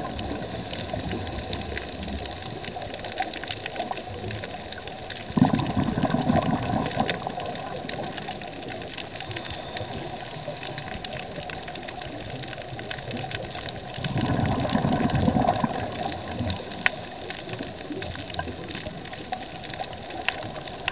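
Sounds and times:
crackling clicks: 0:00.0 - 0:20.9
regulator bubbles gushing underwater: 0:00.0 - 0:20.9
steady hiss: 0:07.1 - 0:14.0.

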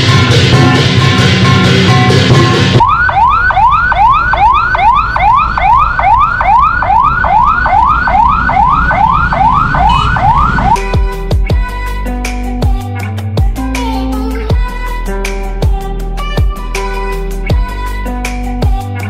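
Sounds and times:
music with drums: 0:00.0 - 0:02.8, 0:10.7 - 0:19.0
street traffic: 0:00.0 - 0:10.8
siren yelping: 0:02.7 - 0:10.8.

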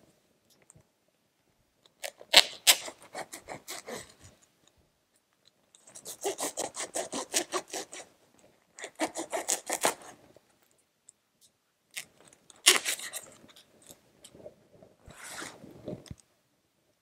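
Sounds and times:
cutting through packing tape: 0:02.0 - 0:04.0, 0:06.0 - 0:08.1, 0:08.8 - 0:10.1, 0:12.0 - 0:13.3.

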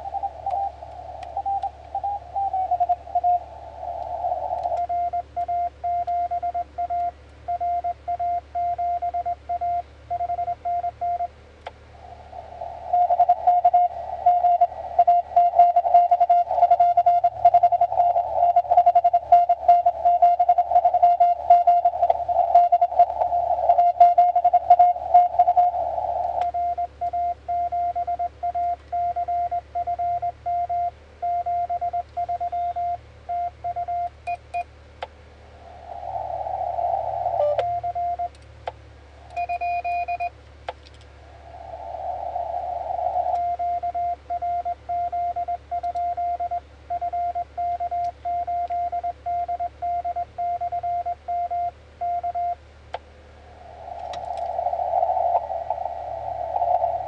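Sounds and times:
radio receiver hiss: 0:00.0 - 0:05.4, 0:11.6 - 0:27.1, 0:35.2 - 0:44.4, 0:52.8 - 0:57.0
morse code tone: 0:00.0 - 0:11.3, 0:12.6 - 0:34.6, 0:36.0 - 0:38.3, 0:39.3 - 0:40.3, 0:41.8 - 0:52.6.

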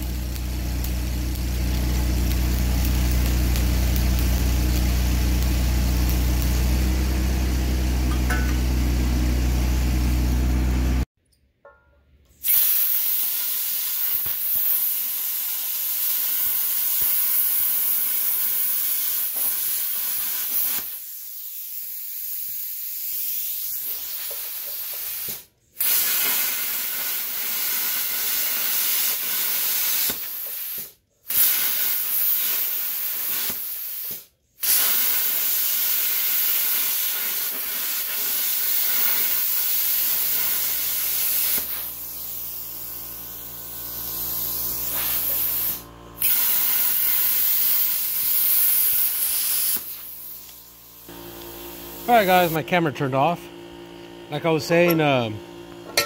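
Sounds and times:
plasma cutter hissing: 0:00.0 - 0:11.1, 0:12.4 - 0:53.3, 0:54.3 - 0:55.3
steady machine hum: 0:00.0 - 0:11.1, 0:50.6 - 0:56.0.

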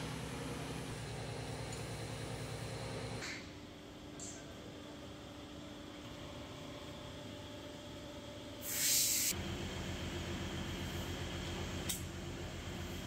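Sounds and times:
burst of hiss: 0:08.6 - 0:09.4.

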